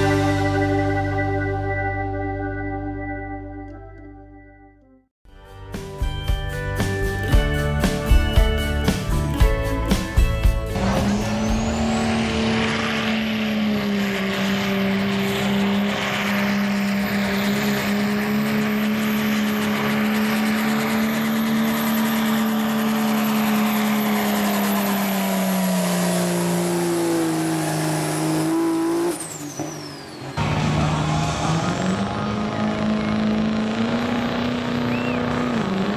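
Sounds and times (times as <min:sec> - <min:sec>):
diesel truck engine running flat out: 0:06.8 - 0:35.9
high whistle: 0:10.8 - 0:12.6, 0:34.8 - 0:35.4.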